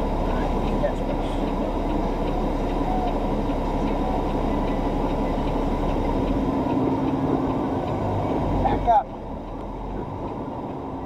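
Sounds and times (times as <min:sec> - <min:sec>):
faint even ticking: 0:00.0 - 0:11.0
truck engine and road rumble: 0:00.0 - 0:11.0.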